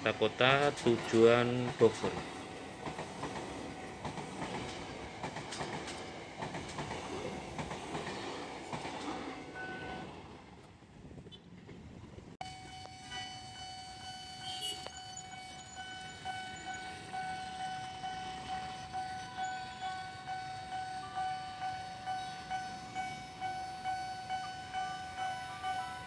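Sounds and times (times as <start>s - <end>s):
rhythmic train wheel beats: 0.0s - 10.2s, 12.4s - 26.0s
electric train passing: 0.0s - 26.0s
steady high tone: 12.4s - 26.0s.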